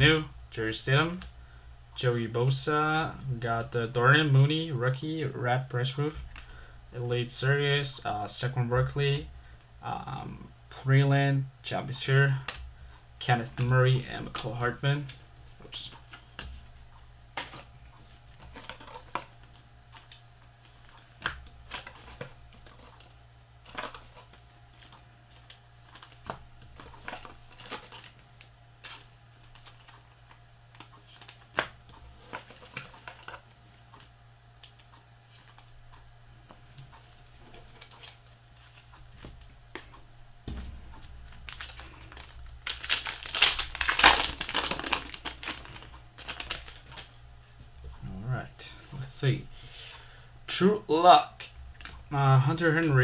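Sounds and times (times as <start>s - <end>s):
foil wrapper crinkling and tearing: 41.2s - 47.2s.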